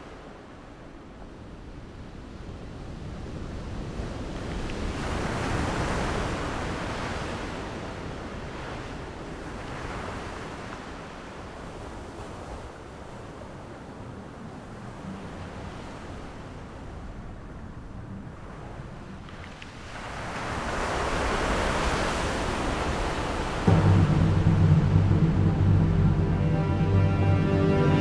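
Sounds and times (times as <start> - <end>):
waves washing in: 3.4 - 13.4, 18.3 - 28.0.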